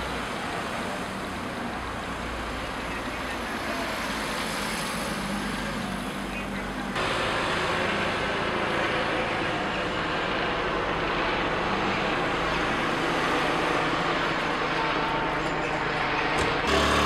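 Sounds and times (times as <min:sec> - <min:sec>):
helicopter rotor chopping: 0:07.0 - 0:17.0.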